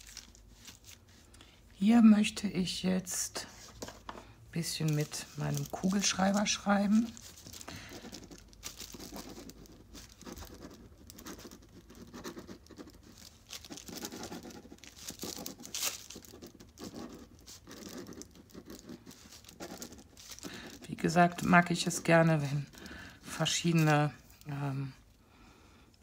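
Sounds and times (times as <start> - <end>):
paper rustling: 0.0 - 1.3, 3.4 - 24.6
pen scratching on paper: 8.0 - 22.4.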